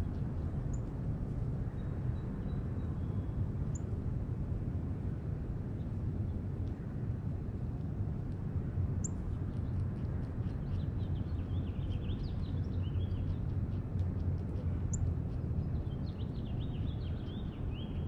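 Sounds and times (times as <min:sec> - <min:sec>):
low background rumble: 0:00.0 - 0:18.0
small birds chirping: 0:09.0 - 0:18.0.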